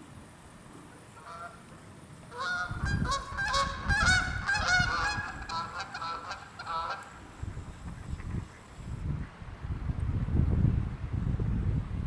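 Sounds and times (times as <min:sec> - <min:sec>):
waterfowl honking: 0:01.2 - 0:01.6, 0:02.3 - 0:07.2.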